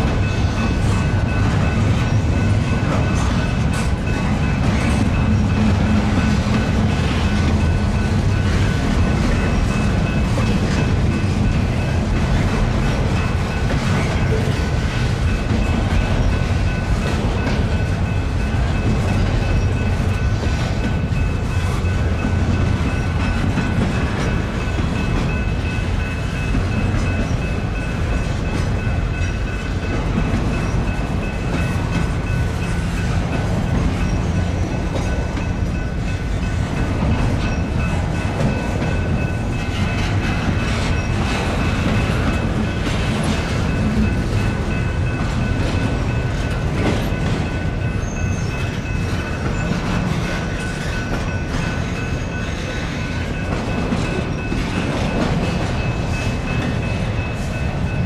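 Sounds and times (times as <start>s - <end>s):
freight train rolling past: 0.0s - 58.0s.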